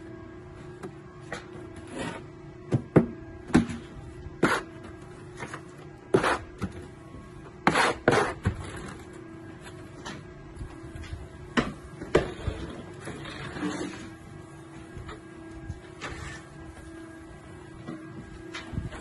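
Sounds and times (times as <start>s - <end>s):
plastering trowel scraping: 4.4s - 4.8s, 5.4s - 6.5s, 7.6s - 9.0s, 12.2s - 14.2s, 16.0s - 16.5s.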